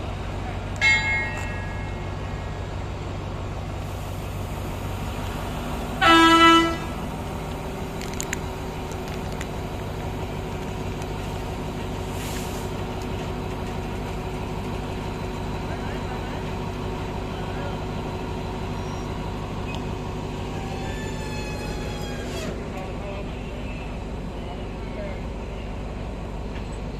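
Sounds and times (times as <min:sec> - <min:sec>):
diesel locomotive engine hum: 0:00.0 - 0:26.9
train horn blast: 0:06.0 - 0:07.0.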